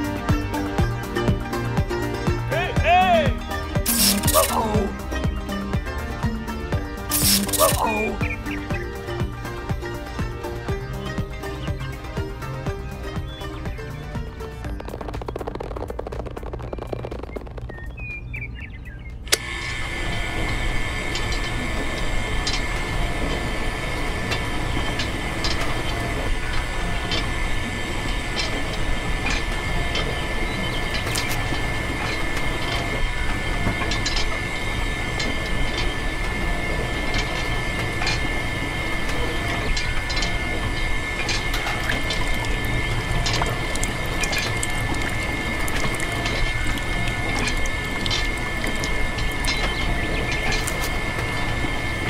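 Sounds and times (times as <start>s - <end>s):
small electric motor whining: 3.4s - 17.8s, 19.2s - 52.0s
clicks and rattles: 3.6s - 18.2s, 19.0s - 52.0s.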